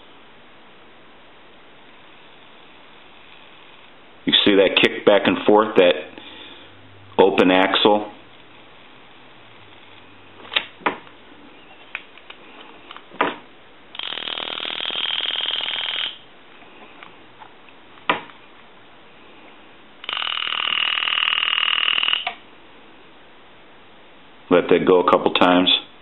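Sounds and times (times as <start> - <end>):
sharp clicks: 20.0 - 22.4.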